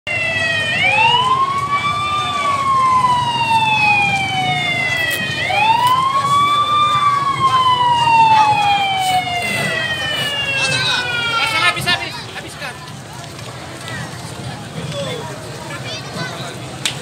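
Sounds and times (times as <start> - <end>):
siren wailing: 0.1 - 12.0.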